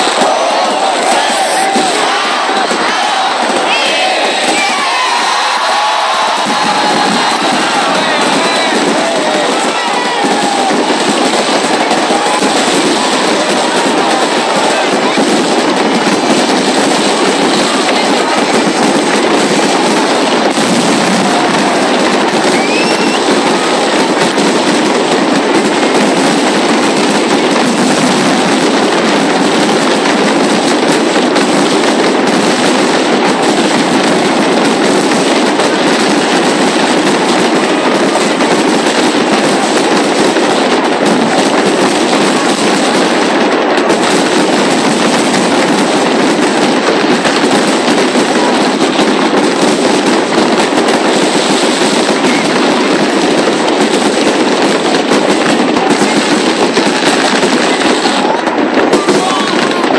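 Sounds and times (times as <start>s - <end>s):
fireworks bursting and crackling: 0.0s - 59.9s.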